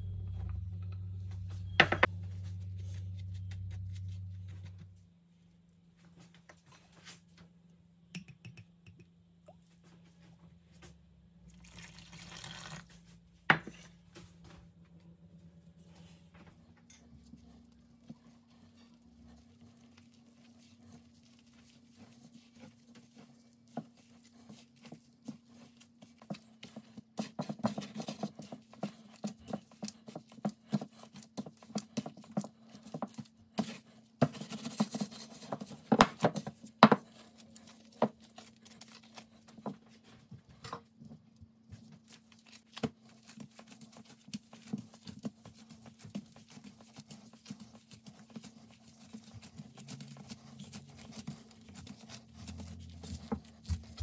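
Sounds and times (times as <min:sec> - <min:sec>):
hands kneading dough: 0:00.0 - 0:05.1, 0:15.8 - 0:54.0
faint steady hum: 0:00.0 - 0:27.0.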